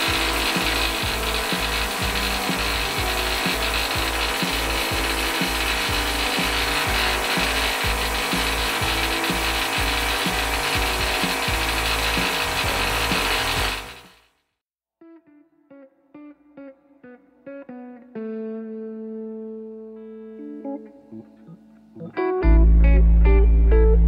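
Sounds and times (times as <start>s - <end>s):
low rhythmic pulsing: 0.0s - 14.0s, 21.3s - 24.0s
spray gun hissing: 0.0s - 14.2s.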